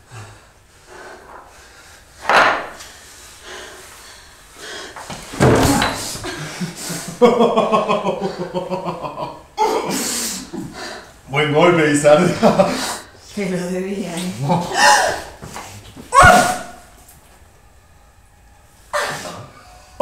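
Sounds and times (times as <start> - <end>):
heavy impacts: 2.2 - 3.1, 5.0 - 6.5.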